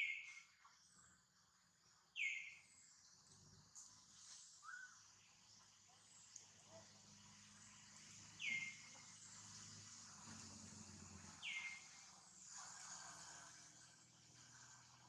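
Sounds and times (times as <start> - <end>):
faint steady high hiss: 0.0 - 15.0.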